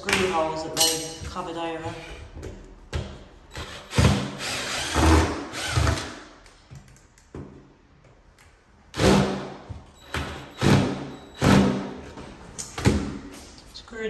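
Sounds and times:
cordless drill running: 0:03.5 - 0:06.1.

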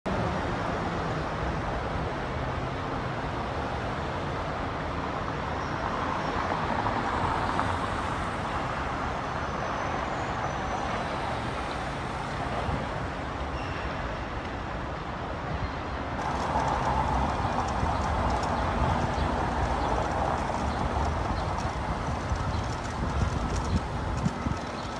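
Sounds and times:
passing cars: 0:00.1 - 0:24.9
footsteps on pavement: 0:16.2 - 0:24.9.

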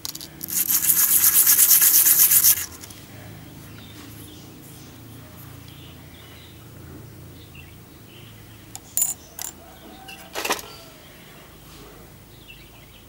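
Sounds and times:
metal disc sanding on sandpaper: 0:00.4 - 0:02.9.

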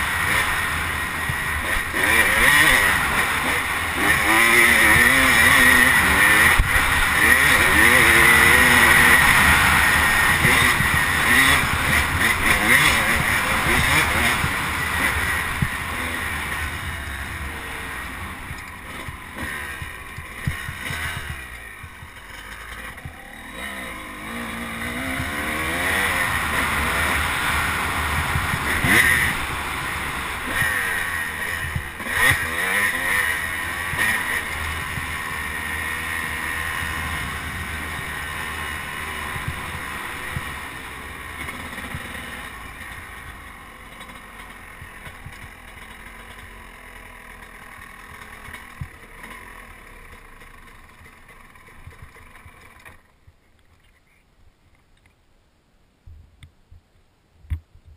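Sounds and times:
motorcycle engine revving: 0:00.0 - 0:53.2.

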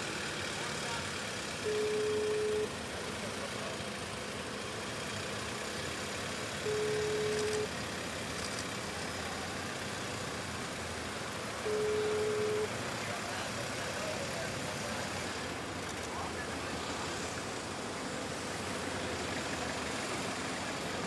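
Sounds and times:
motorcycles and vehicles passing: 0:00.0 - 0:21.0
steady-pitch beep: 0:01.6 - 0:02.8, 0:06.6 - 0:07.7, 0:11.7 - 0:12.7.

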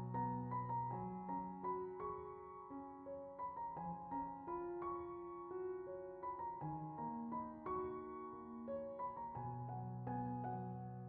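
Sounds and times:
slow gentle piano music: 0:00.0 - 0:11.0.

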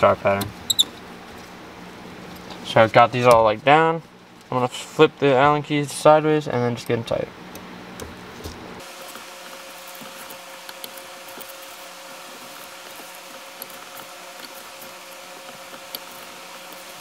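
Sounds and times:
steady hiss: 0:08.8 - 0:17.0.

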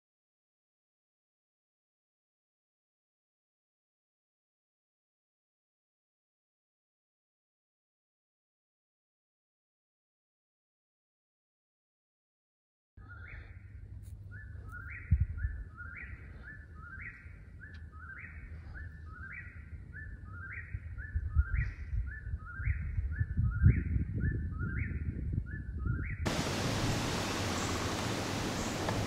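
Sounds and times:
steady hiss: 0:26.3 - 0:29.0.

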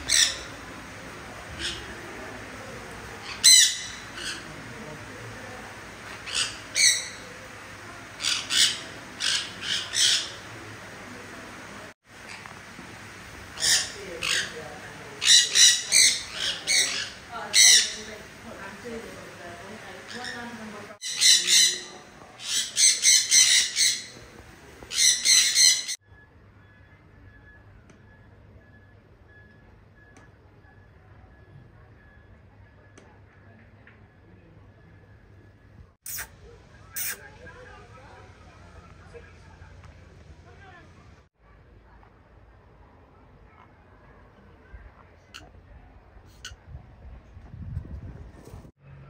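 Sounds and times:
parrots giving harsh calls: 0:00.0 - 0:00.6, 0:03.2 - 0:04.5, 0:06.0 - 0:07.4, 0:08.2 - 0:10.5, 0:13.6 - 0:14.6, 0:15.2 - 0:18.1, 0:20.0 - 0:24.1, 0:24.9 - 0:26.0, 0:36.1 - 0:36.3.

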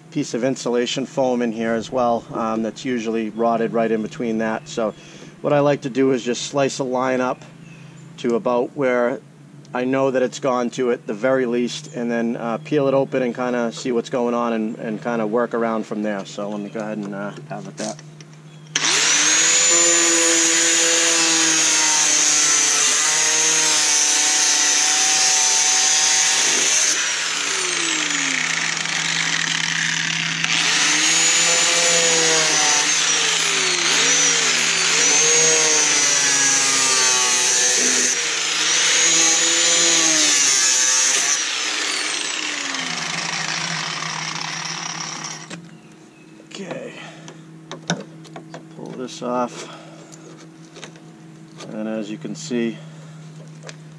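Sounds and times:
angle grinder cutting metal: 0:18.7 - 0:45.6
motor winding down: 0:18.7 - 0:45.6.

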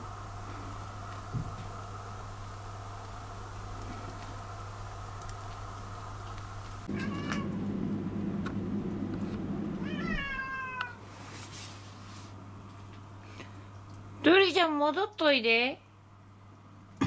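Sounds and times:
cat meowing: 0:06.9 - 0:07.6, 0:09.8 - 0:11.0.

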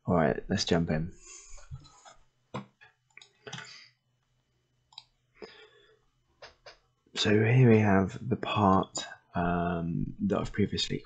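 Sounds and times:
computer mouse clicks: 0:04.9 - 0:05.1.

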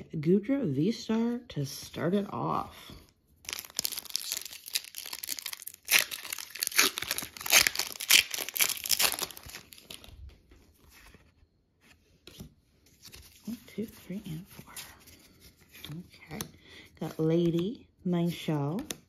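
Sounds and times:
foil wrapper tearing and crinkling: 0:03.4 - 0:10.2.

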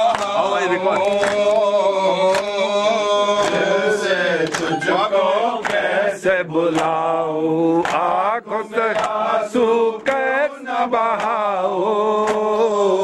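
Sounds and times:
men chanting a lament: 0:00.0 - 0:13.0
sharp beat: 0:03.3 - 0:05.9.

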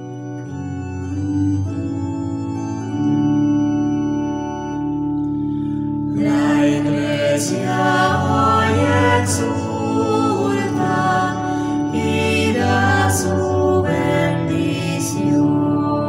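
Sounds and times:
organ playing held chords: 0:00.0 - 0:16.0
choir singing a hymn: 0:06.1 - 0:16.0.

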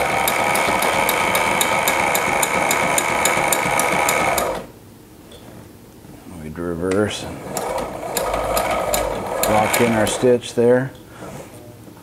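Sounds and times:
sewing machine stitching: 0:00.0 - 0:04.7, 0:07.4 - 0:10.4.

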